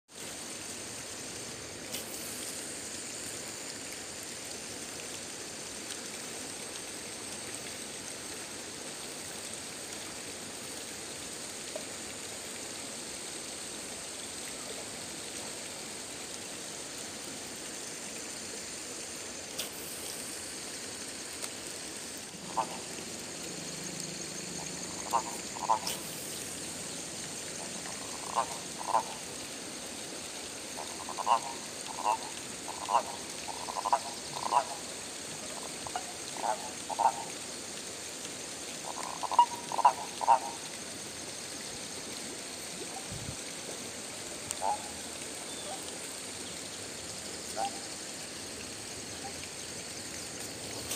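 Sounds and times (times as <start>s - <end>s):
frogs and insects calling: 13.0s - 50.9s
loud frog croaks: 22.3s - 37.5s, 38.8s - 40.8s, 44.5s - 45.1s.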